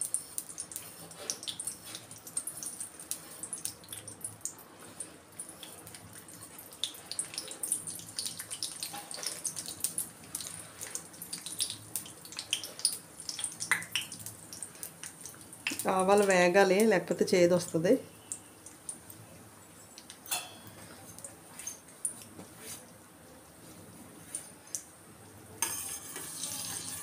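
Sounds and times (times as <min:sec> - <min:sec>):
seeds sizzling in hot oil: 0:00.0 - 0:19.1, 0:25.6 - 0:27.0
small ticks and pops: 0:11.4 - 0:15.9.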